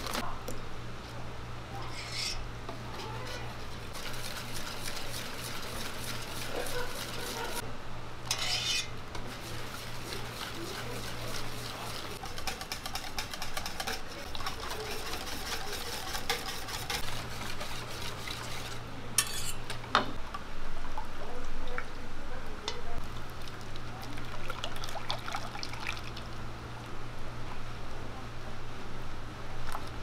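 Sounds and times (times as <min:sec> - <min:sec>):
batter sloshing: 0:02.9 - 0:07.6, 0:09.2 - 0:18.8
batter streaming through sieve: 0:02.9 - 0:07.6, 0:09.2 - 0:18.8
whisk clinking against metal bowl: 0:03.0 - 0:07.6, 0:08.3 - 0:19.7.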